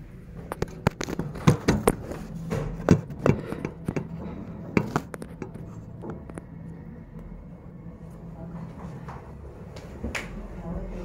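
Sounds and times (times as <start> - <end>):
phone handling knocks and rubs: 0.6 - 5.8.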